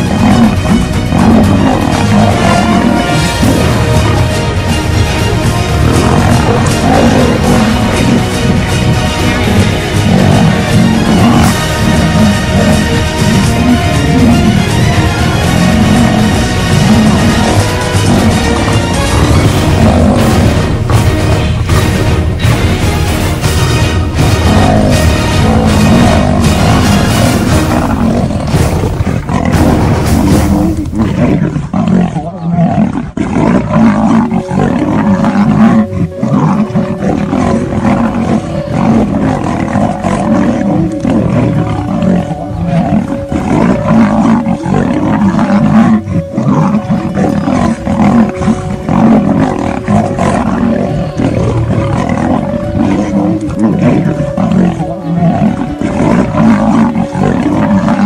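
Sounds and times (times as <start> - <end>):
lion and tiger roaring: 0.0 - 58.0.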